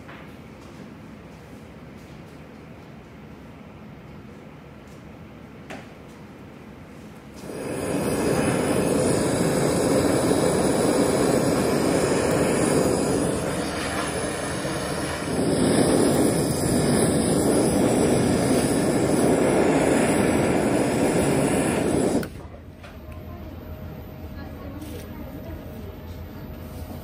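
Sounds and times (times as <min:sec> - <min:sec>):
blowtorch hissing: 0:07.4 - 0:22.6.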